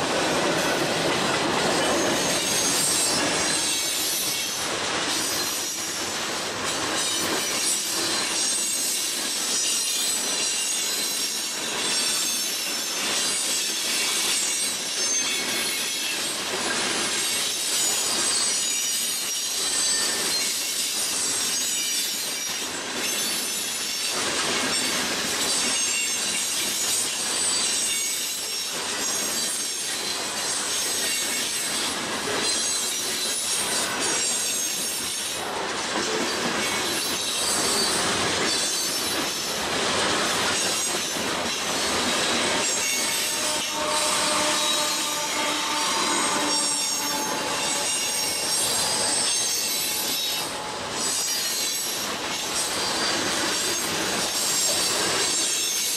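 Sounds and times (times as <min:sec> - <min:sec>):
steel wheels rushing on rail: 0:00.0 - 0:55.9
high wheel squeal: 0:40.5 - 0:55.9.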